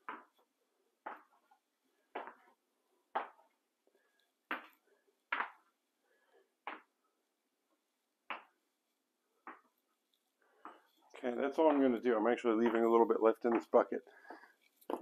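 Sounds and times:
sticky footsteps on wet floor: 0:11.4 - 0:15.0.

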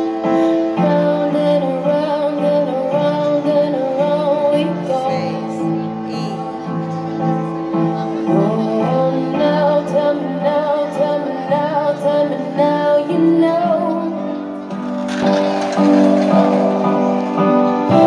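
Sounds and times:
instrumental backing: 0:00.0 - 0:18.0
woman singing: 0:00.7 - 0:06.5, 0:08.3 - 0:14.4.

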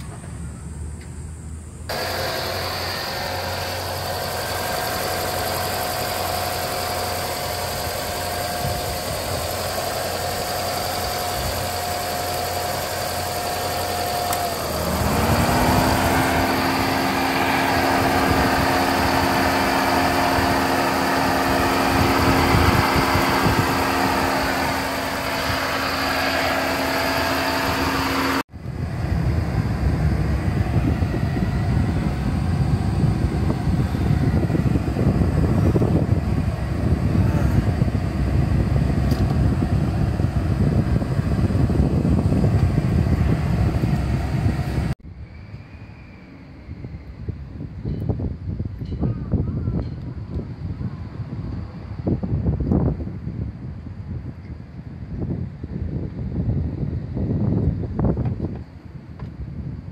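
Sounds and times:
car engine idling: 0:00.4 - 0:45.0
electric cooling fan whirring: 0:01.9 - 0:45.0
steady rushing noise: 0:01.9 - 0:45.1.

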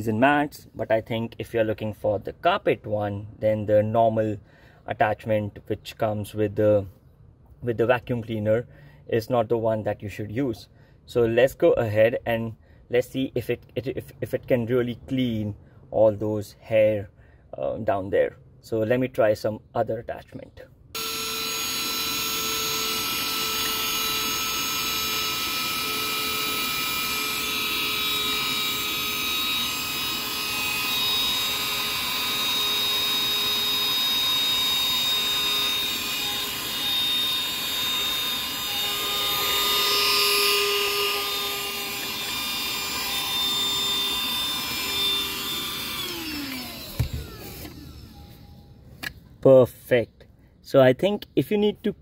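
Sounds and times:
handheld vacuum motor whine: 0:21.0 - 0:49.2.

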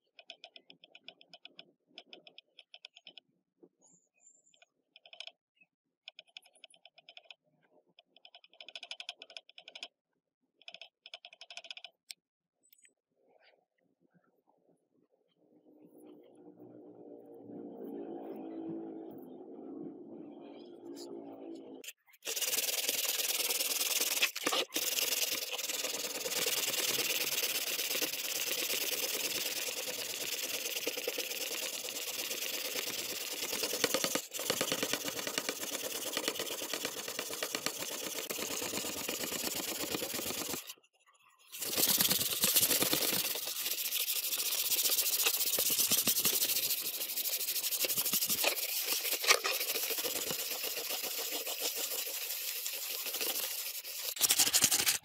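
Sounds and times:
abrasive scrubbing or sanding: 0:22.2 - 0:40.7, 0:41.5 - 0:55.0.

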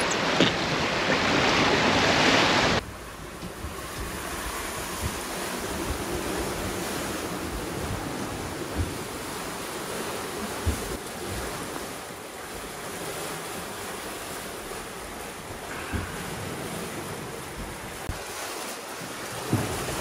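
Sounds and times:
wind buffeting microphone: 0:00.0 - 0:11.8
steady wind: 0:00.0 - 0:20.0
water rushing along hulls: 0:00.0 - 0:20.0.

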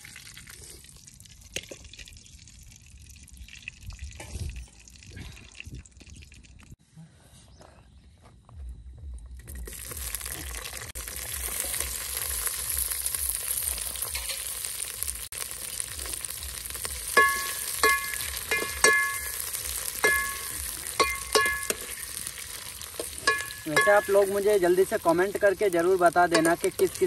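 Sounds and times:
onions sizzling in hot oil: 0:09.6 - 0:27.0
spoon clinking against metal pot: 0:17.1 - 0:22.1, 0:23.0 - 0:24.4, 0:26.2 - 0:27.0.

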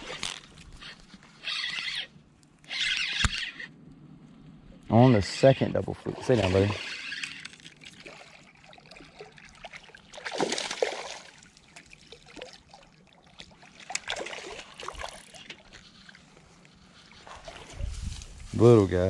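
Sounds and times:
fish splashing at water surface: 0:07.5 - 0:15.7.

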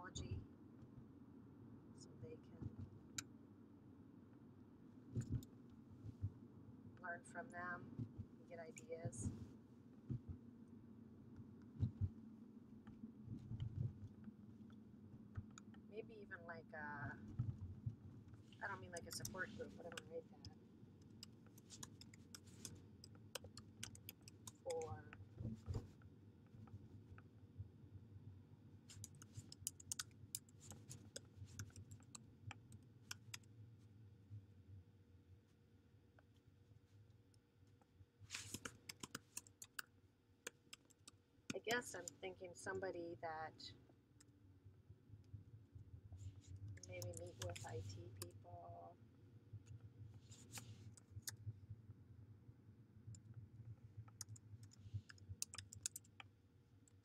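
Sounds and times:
low steady hum: 0:00.0 - 0:57.0
computer keyboard typing: 0:18.6 - 0:25.1, 0:28.9 - 0:33.5, 0:38.4 - 0:39.9, 0:46.7 - 0:48.4, 0:54.1 - 0:56.3.

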